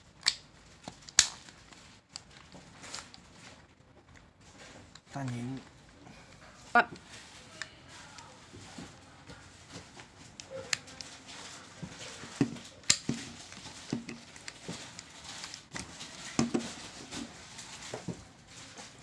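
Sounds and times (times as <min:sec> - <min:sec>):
plastic case clicks and knocks: 0:12.3 - 0:13.3.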